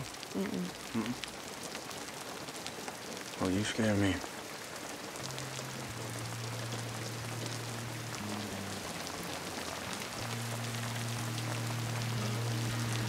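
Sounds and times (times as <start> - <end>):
steady rain falling: 0.0 - 13.0
low held film score notes: 5.1 - 13.0.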